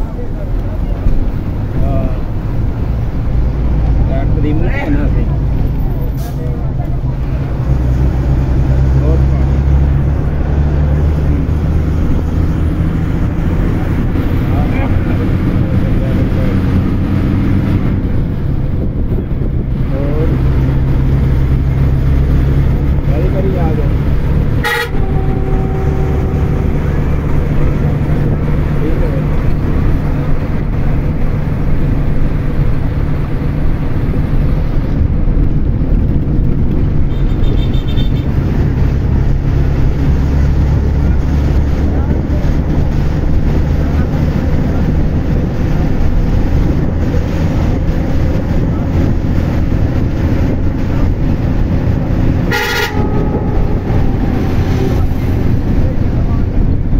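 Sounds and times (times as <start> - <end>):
vehicle rumble: 0.0 - 56.9
horn honk: 24.5 - 27.9, 37.1 - 38.3, 52.4 - 55.7.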